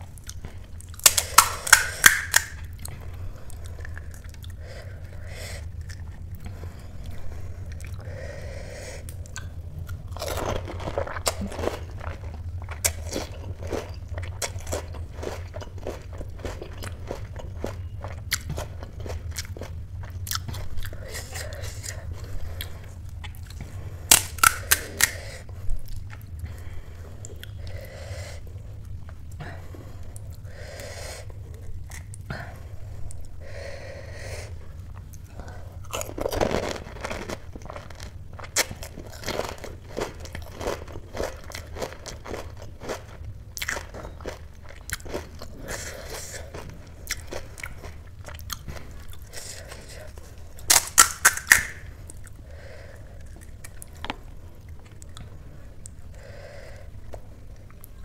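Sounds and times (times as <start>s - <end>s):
wet chewing: 0.0s - 28.1s, 34.7s - 56.4s
steady low hum: 0.0s - 58.0s
crisp shells crunching: 0.3s - 2.8s, 24.1s - 25.3s, 35.9s - 52.2s.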